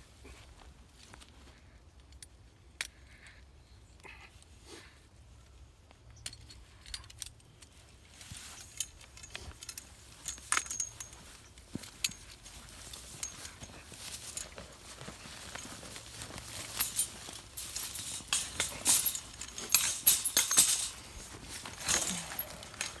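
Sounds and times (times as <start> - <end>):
wire cage and cable rattling: 6.2 - 23.0.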